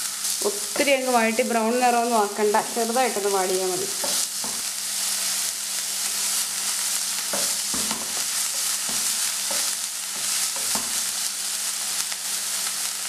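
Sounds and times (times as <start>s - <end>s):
onions sizzling in oil: 0.0s - 13.0s
spatula scraping a pan: 3.9s - 11.2s.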